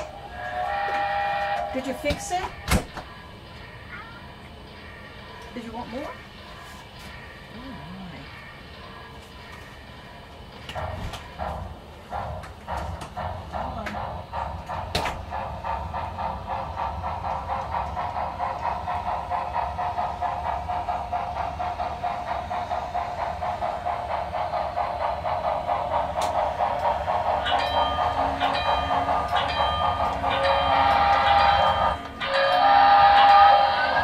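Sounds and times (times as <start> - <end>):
model steam locomotive chuffing: 0.0 - 34.0
crossing bell ringing: 27.4 - 34.0.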